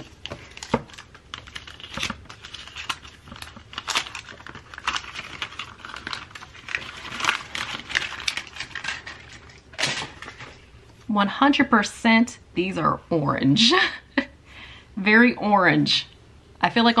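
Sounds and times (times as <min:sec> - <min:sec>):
packaging crinkling: 0:00.0 - 0:10.6.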